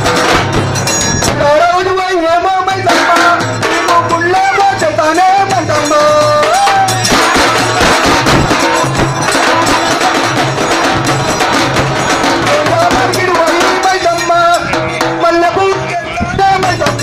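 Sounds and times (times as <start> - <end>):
barrel drum beats: 0.0 - 17.0
other percussion: 0.0 - 17.0
man singing into a microphone: 1.3 - 7.5, 12.4 - 17.0.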